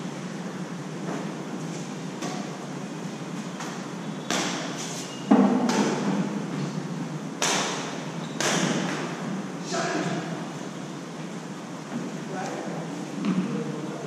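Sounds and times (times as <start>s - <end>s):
racket striking shuttlecock: 3.6s - 6.3s, 7.4s - 9.1s.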